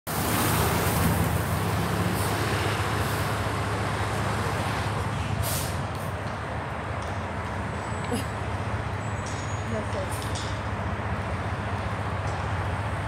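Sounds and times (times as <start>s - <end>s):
road noise: 0.1s - 13.0s
vehicle engines idling: 0.1s - 13.0s
short hiss: 5.4s - 5.8s.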